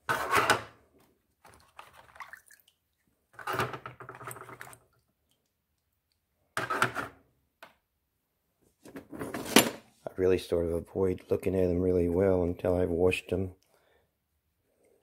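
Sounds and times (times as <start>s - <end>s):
water sloshing in a plastic bowl: 0.2s - 5.9s.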